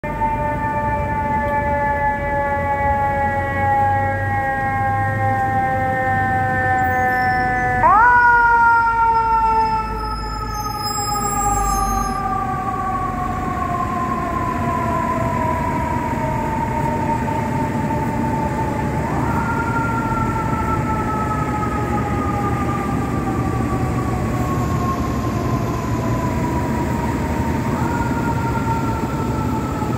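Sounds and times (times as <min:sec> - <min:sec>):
low rumble of city traffic: 0:00.0 - 0:29.9
fire truck siren winding: 0:06.2 - 0:12.6.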